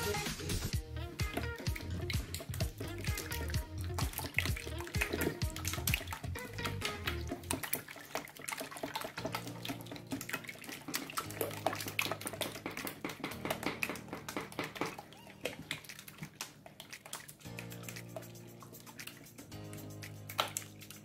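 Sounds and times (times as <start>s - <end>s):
background music: 0.0s - 8.0s, 8.8s - 15.5s, 17.4s - 21.0s
whisk beating eggs in bowl: 0.8s - 21.0s.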